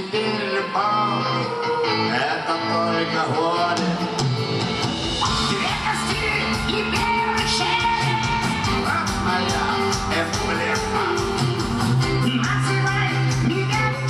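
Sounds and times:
man singing through a pa: 0.0s - 4.1s
bass: 0.0s - 14.0s
drums: 0.0s - 14.0s
electric guitar: 0.0s - 14.0s.

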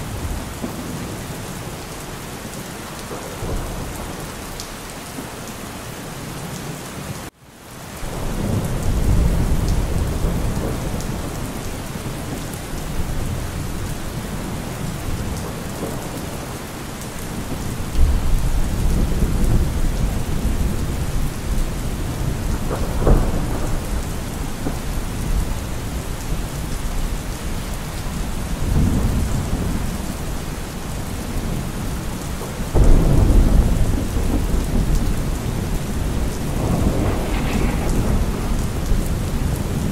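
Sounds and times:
steady rain: 0.0s - 39.9s
rolling thunder rumbles: 8.0s - 39.9s.

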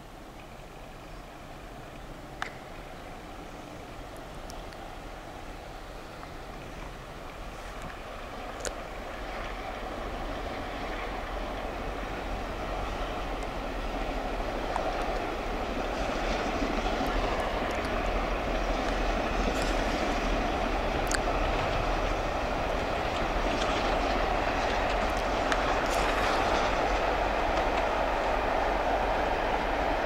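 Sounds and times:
distant train rumbling on rails: 0.0s - 30.0s.

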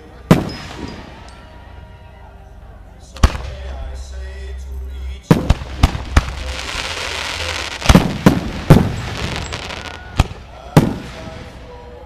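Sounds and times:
firework bangs with echo: 0.3s - 1.2s, 5.3s - 11.6s.

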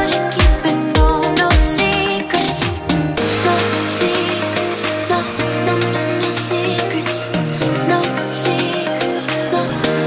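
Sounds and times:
electronic music: 0.0s - 10.0s
held bass note: 2.9s - 7.6s.

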